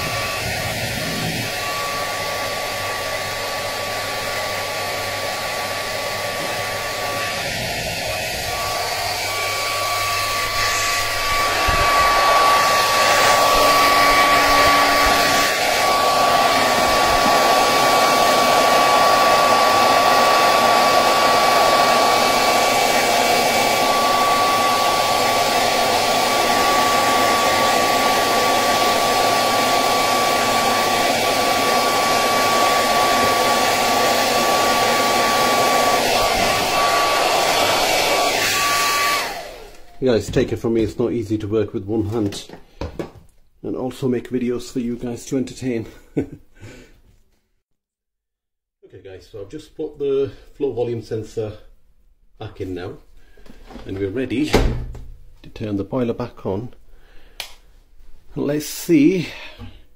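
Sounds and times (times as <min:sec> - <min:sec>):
hair dryer blowing with high whine: 0:00.0 - 0:40.8.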